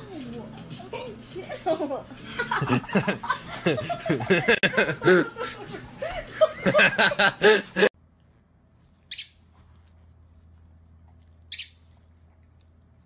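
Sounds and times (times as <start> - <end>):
person laughing: 2.3 - 7.9
faint low hum: 8.0 - 13.0.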